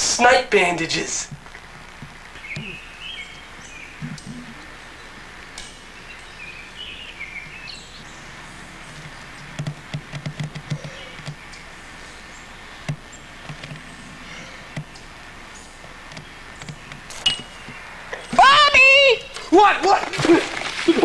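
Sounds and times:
birds chirping: 0.0 - 21.0.

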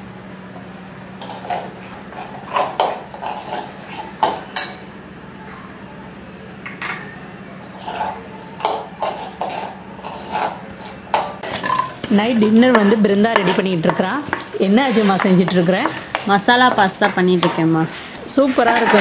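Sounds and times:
spoon clinking and scraping bowl: 7.8 - 17.6.

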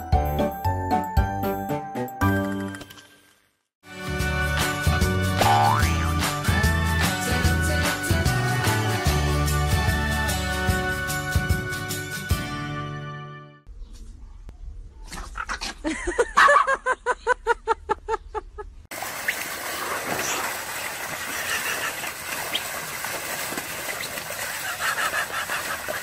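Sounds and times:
water pouring and splashing: 18.9 - 26.0.

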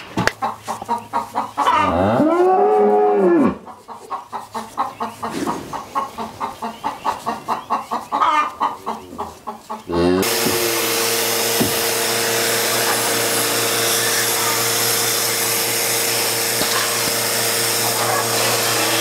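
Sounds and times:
chickens clucking: 0.0 - 19.0
cow mooing: 1.8 - 3.6, 9.9 - 10.5.

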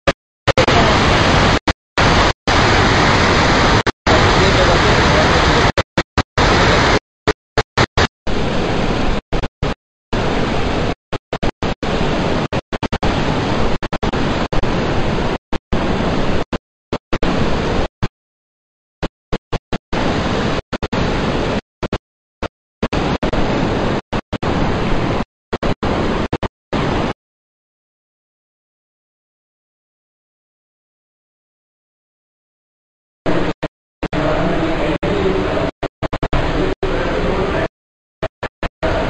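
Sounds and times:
water rushing through sluice gates: 0.6 - 5.8, 6.4 - 7.0.

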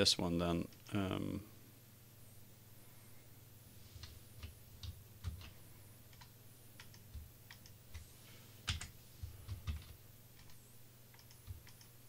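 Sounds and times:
steady low hum: 0.0 - 12.0
keyboard and mouse clicks: 4.0 - 8.1, 8.7 - 12.0.

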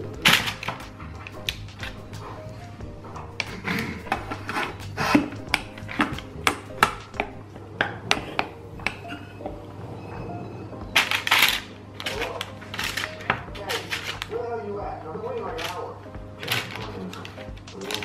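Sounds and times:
parchment paper rustling: 11.0 - 14.5, 15.2 - 18.0.

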